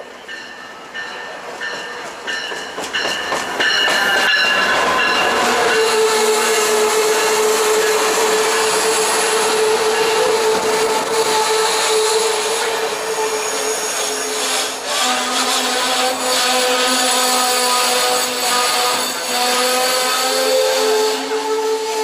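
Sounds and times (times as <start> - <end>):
locomotive bell ringing: 0.0 - 10.5
diesel train arriving: 0.0 - 22.0
train cars rumbling: 0.0 - 22.0.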